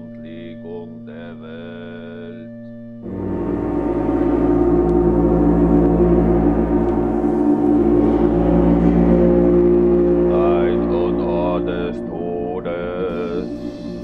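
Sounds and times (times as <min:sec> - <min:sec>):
gong-like stroke: 0:03.0 - 0:14.0
sustained chamber ensemble chords: 0:03.0 - 0:14.0.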